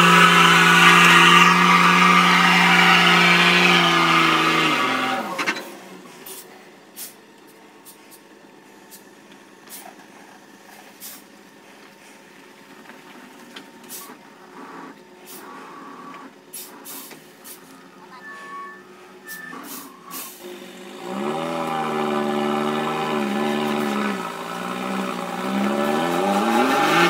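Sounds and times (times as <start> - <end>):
diesel engine revving: 0.0 - 8.9, 13.8 - 27.0
truck air brake hisses: 6.1 - 7.2, 9.7 - 10.0, 10.8 - 11.3, 13.8 - 14.2, 15.2 - 15.6, 16.5 - 17.8, 19.2 - 20.4
beeping tones: 17.7 - 20.0.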